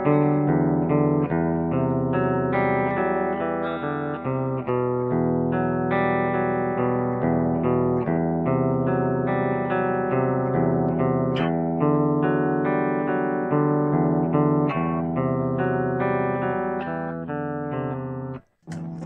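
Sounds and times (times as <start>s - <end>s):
clean electric guitar: 0.0s - 19.0s.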